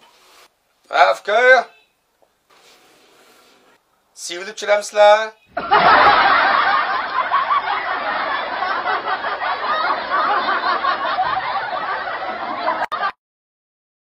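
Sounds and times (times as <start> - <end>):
crowd laughing: 5.5 - 13.2.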